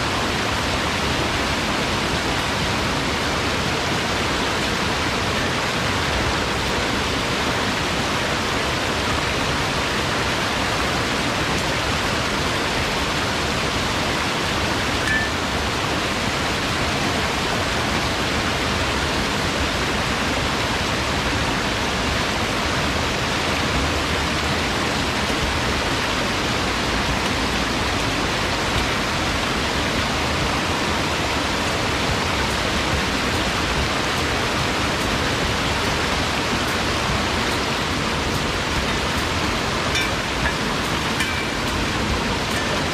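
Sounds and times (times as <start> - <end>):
river rushing over rocks: 0.0 - 42.9.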